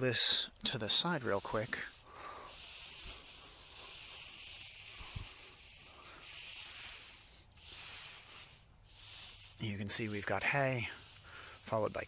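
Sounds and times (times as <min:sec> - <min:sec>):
dry hay rustling: 0:00.3 - 0:12.0.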